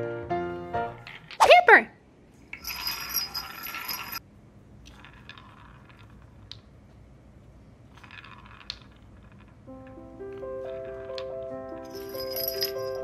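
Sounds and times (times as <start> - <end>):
wooden balls rolling and clattering: 0.9 - 1.4, 2.5 - 4.2, 4.8 - 13.0
small bell jingling: 2.6 - 4.2, 11.8 - 13.0.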